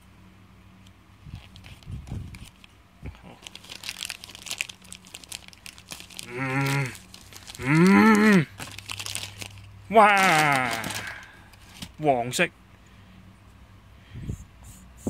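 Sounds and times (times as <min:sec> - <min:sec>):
plastic packet crinkling: 0:01.3 - 0:12.0.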